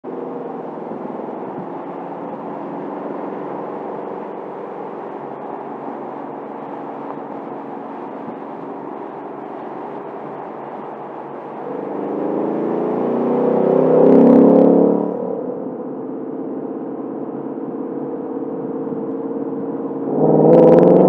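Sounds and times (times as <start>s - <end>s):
car exhaust cruising: 0.0s - 21.0s.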